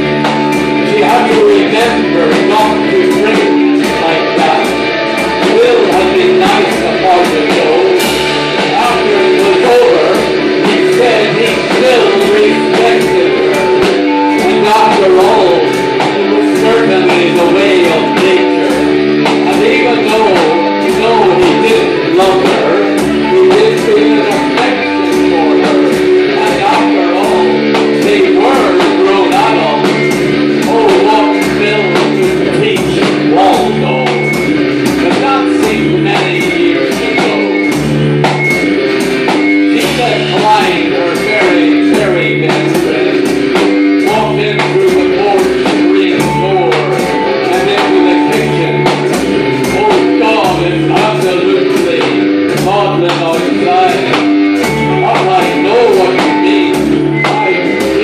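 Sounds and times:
electric guitars playing: 0.0 - 58.0
steady drum beat: 0.0 - 58.0.

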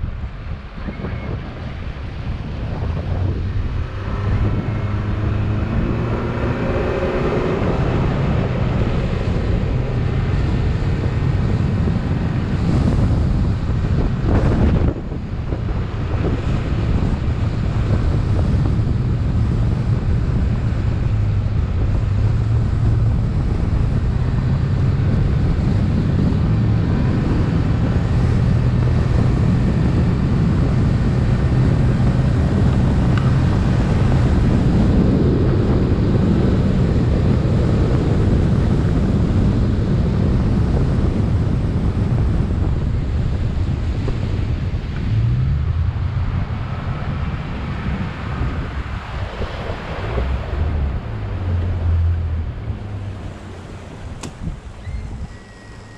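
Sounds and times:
outboard motor drone: 0.0 - 55.9
water rushing along hull: 0.0 - 55.9
wind buffeting microphone: 0.0 - 55.9.

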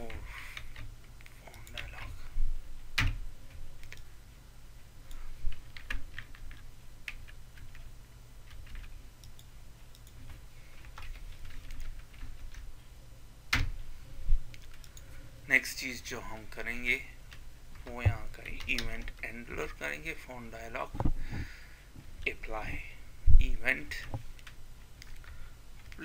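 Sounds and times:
low steady hum: 0.0 - 26.0
typing on computer keyboard: 5.6 - 10.2, 10.8 - 12.7.

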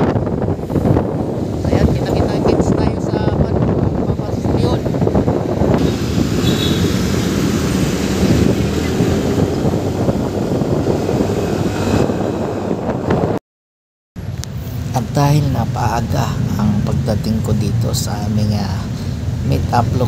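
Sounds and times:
scooter engine and road rumble: 0.0 - 13.4, 14.2 - 20.0
wind buffeting microphone: 0.0 - 13.4.

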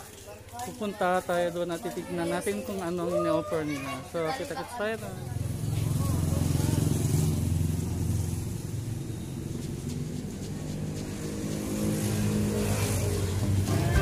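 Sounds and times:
vehicle engine rumbling: 5.1 - 14.0.

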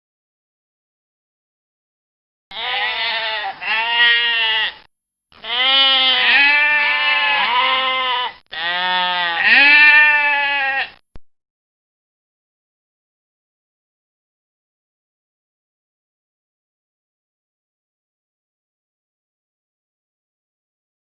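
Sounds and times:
sheep bleating: 2.5 - 11.0.

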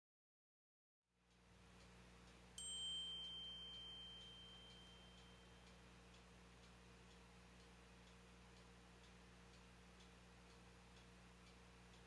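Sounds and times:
low steady hum: 1.1 - 12.0
faint regular ticking: 1.2 - 12.0
high clear ringing tone: 2.5 - 6.1.

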